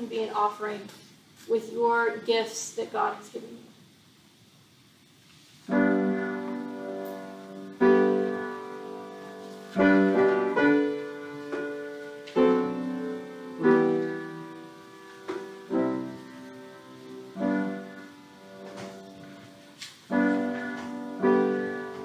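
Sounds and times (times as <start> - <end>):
slow piano chords: 5.7 - 22.0.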